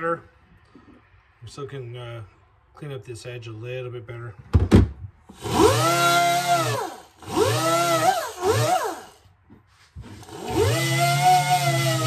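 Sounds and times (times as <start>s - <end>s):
power grinder whining: 5.3s - 9.2s, 10.0s - 12.0s.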